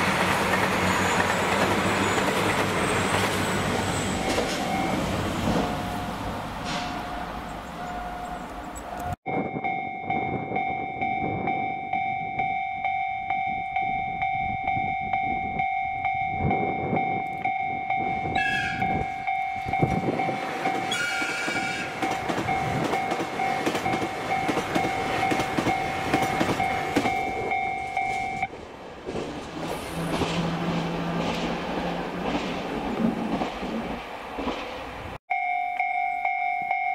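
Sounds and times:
level crossing alarm ringing: 0:04.1 - 0:28.5, 0:35.3 - 0:36.9
train horn blasts: 0:18.3 - 0:19.0, 0:20.9 - 0:22.0.

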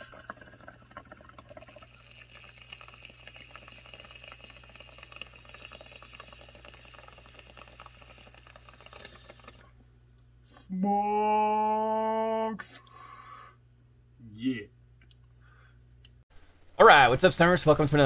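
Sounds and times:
water bubbling in bong: 0:00.0 - 0:09.8.

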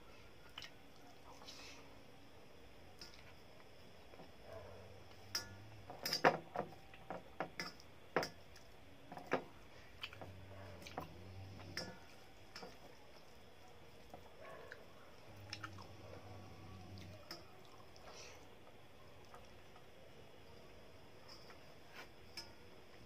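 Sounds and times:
wet rice squishing: 0:06.8 - 0:20.0
chewing: 0:09.8 - 0:18.5.

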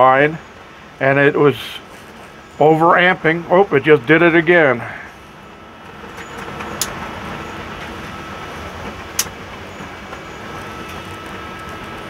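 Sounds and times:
high wind rumble: 0:00.0 - 0:12.0
breaker clicks: 0:06.1 - 0:07.1, 0:08.8 - 0:12.0.

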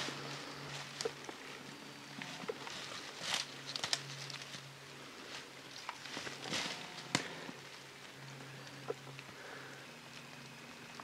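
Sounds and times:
dry leaves rustling and crackling: 0:02.2 - 0:08.6
twig snapping: 0:03.3 - 0:04.5.

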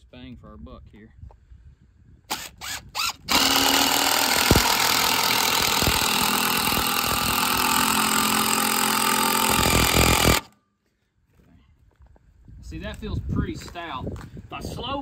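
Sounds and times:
impact driver driving screw into log: 0:02.3 - 0:10.6.

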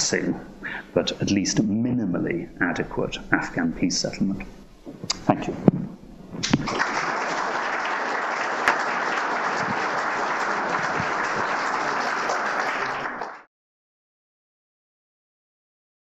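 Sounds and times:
audience applauding: 0:06.4 - 0:13.5.

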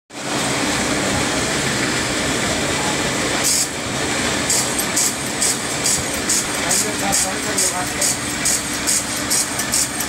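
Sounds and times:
machine drone and hum: 0:00.1 - 0:10.0
high hissing cutting bursts: 0:03.4 - 0:03.8, 0:04.5 - 0:10.0.

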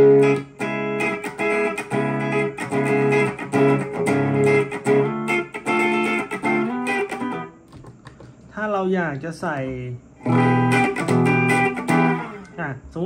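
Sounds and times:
clean electric guitar chords strummed: 0:00.0 - 0:07.6, 0:10.2 - 0:12.6.

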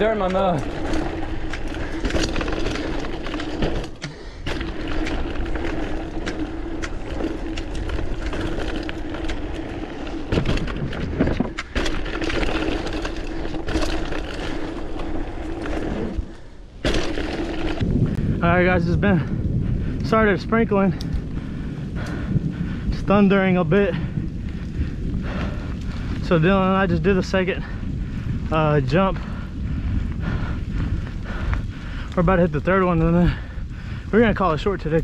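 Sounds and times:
tyres rushing over dirt: 0:00.0 - 0:19.3
bike clicks and rattles: 0:00.0 - 0:35.0.

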